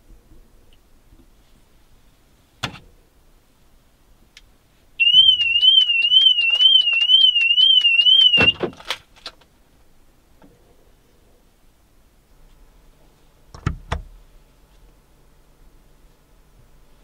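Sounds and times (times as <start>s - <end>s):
car alarm siren warbling: 5.0s - 8.7s.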